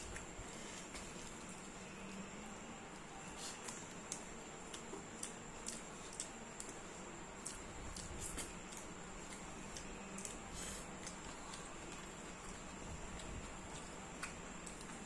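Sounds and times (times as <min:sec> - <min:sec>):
faint high whine: 0:00.0 - 0:15.0
wet clicks and squishes of eating: 0:03.6 - 0:15.0.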